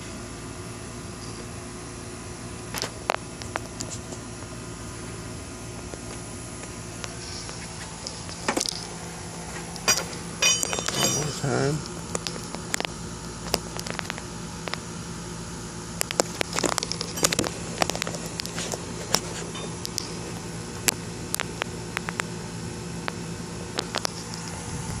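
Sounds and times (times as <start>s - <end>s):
low hum and hiss: 0.0s - 25.0s
sharp clicks and crackles: 2.8s - 4.2s, 9.7s - 14.9s, 16.0s - 22.3s, 23.0s - 24.6s.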